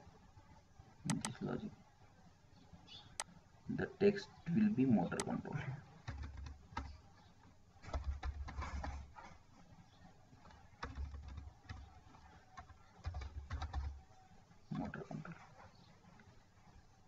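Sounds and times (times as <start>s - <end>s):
keyboard keys clicking: 1.1s - 1.4s, 5.1s - 5.4s, 6.0s - 7.0s, 7.8s - 9.1s, 10.4s - 14.0s.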